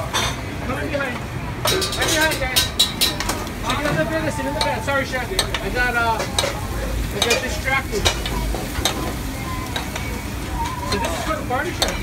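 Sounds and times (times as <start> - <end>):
metal spoon clinking against pan: 1.7 - 3.4, 4.6 - 6.6, 7.2 - 10.2, 10.9 - 12.0
meat sizzling in a pan: 2.8 - 12.0.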